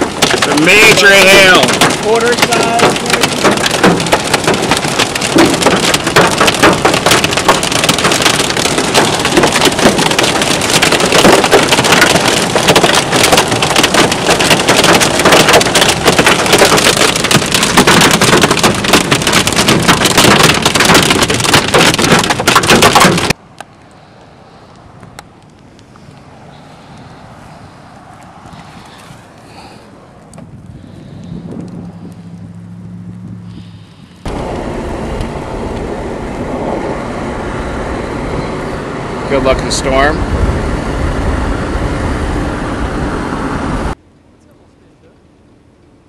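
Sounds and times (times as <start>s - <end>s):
hail and rain on car roof: 0.0s - 23.4s, 39.3s - 40.2s.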